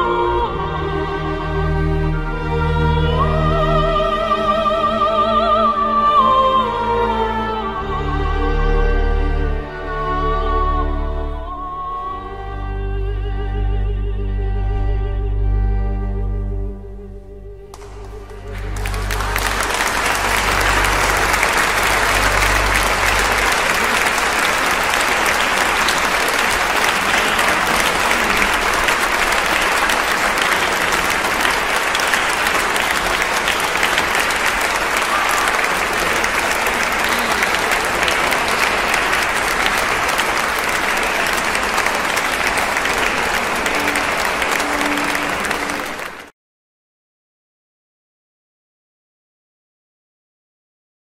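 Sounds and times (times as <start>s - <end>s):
audience applauding: 17.7s - 46.3s.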